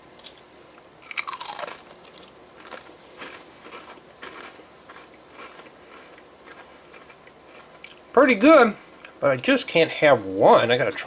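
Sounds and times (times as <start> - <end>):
chewing crunches: 0.2 - 8.1
crisp crunching: 1.0 - 8.0.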